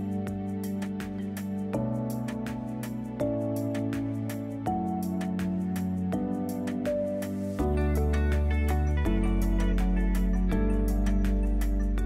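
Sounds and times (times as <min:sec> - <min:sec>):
plucked instrumental music with beat: 0:00.0 - 0:12.0.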